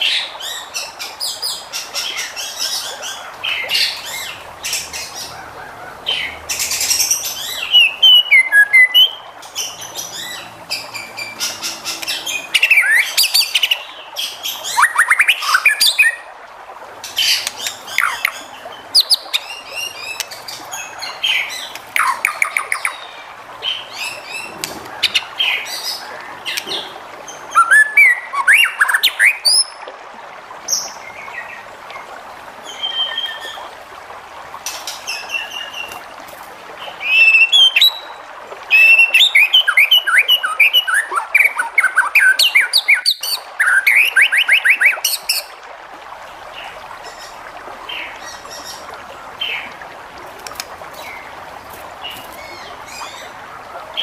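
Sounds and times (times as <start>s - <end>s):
songbird singing whistles and trills: 6.7s - 9.2s, 27.5s - 29.8s, 32.7s - 33.7s, 37.0s - 45.4s.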